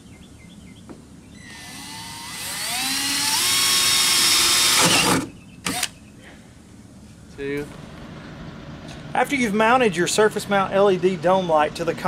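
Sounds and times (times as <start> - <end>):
cordless drill whining: 1.4 - 5.9.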